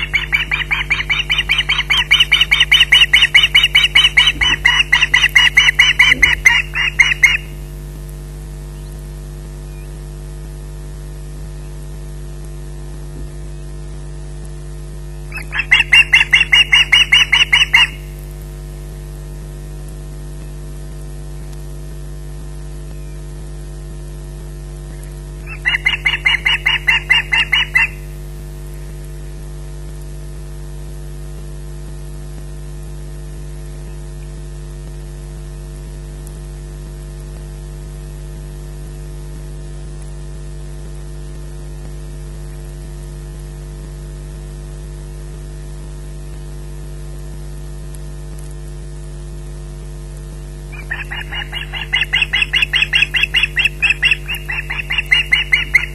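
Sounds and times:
osprey calling: 0:00.0 - 0:07.6, 0:15.1 - 0:18.1, 0:24.9 - 0:28.1, 0:50.7 - 0:55.9
mains hum: 0:00.0 - 0:55.9.

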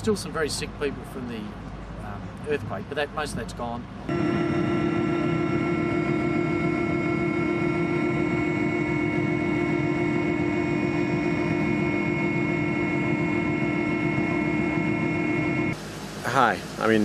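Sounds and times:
aircraft engine drone: 0:02.1 - 0:17.0
high whining tones: 0:04.0 - 0:17.0.

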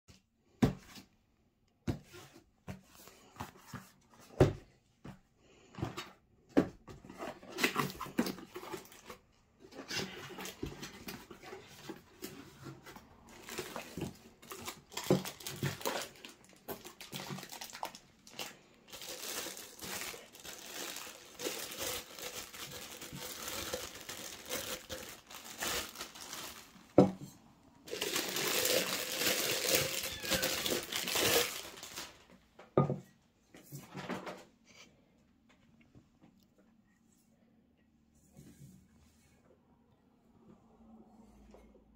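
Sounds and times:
plastic wrap crinkling: 0:09.9 - 0:27.2, 0:27.8 - 0:32.4.

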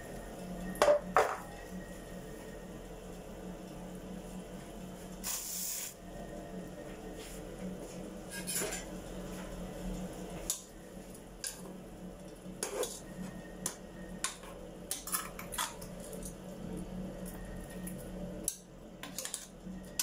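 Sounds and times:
steady low hum: 0:00.0 - 0:20.0
kitchen utensils clinking: 0:08.3 - 0:08.9, 0:19.0 - 0:19.5.

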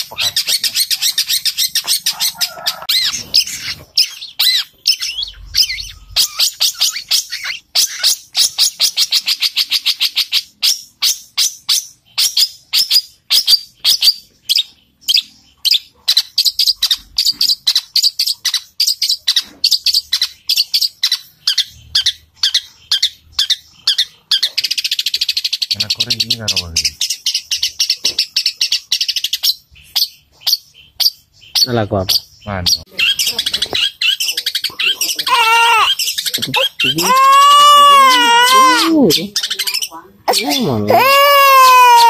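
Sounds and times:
bird chirping fast song: 0:00.0 - 0:42.0.

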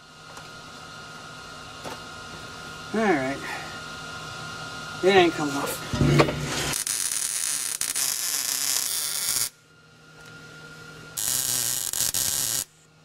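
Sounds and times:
arc welding crackling hiss: 0:06.5 - 0:09.6, 0:11.1 - 0:12.8.

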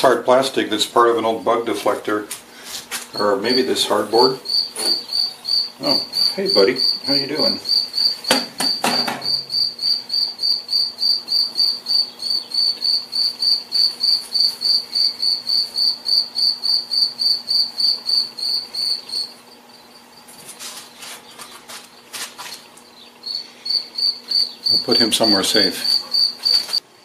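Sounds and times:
cricket chirping: 0:03.1 - 0:20.4, 0:22.8 - 0:26.8.

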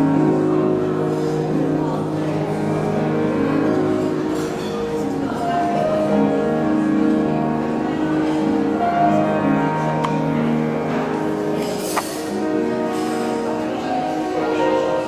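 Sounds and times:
grand piano classical piece: 0:00.0 - 0:15.0
tableware clinks: 0:11.6 - 0:13.2.

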